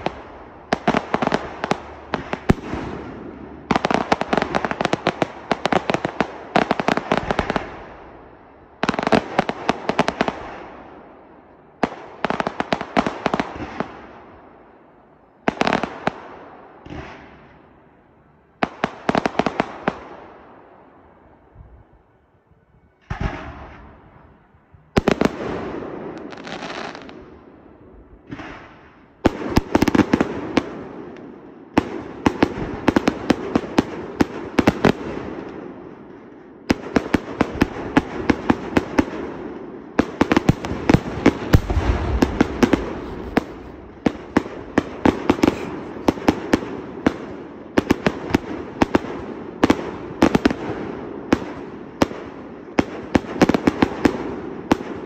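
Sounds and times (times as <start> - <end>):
fireworks bangs and cracks: 0.0 - 8.0, 8.8 - 11.0, 18.6 - 20.4, 25.0 - 27.4, 28.2 - 55.0
fireworks crackle: 0.0 - 8.0, 40.0 - 52.2
fireworks whooshes: 40.4 - 47.0.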